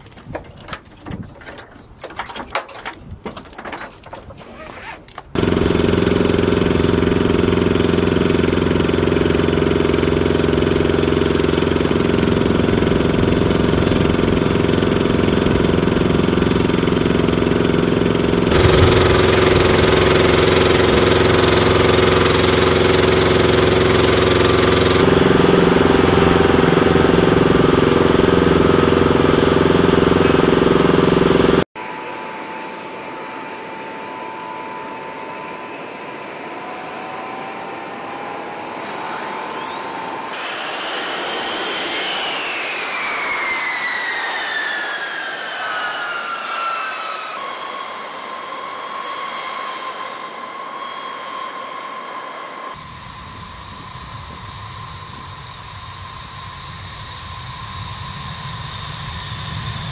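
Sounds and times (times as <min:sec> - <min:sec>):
light knocks and clatters: 0:00.0 - 0:05.3
loud steady engine drone: 0:05.1 - 0:59.9.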